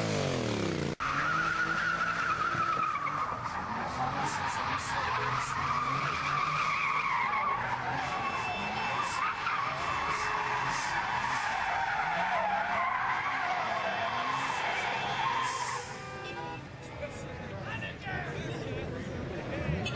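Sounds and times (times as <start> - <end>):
tyres squealing: 1.0 - 16.0.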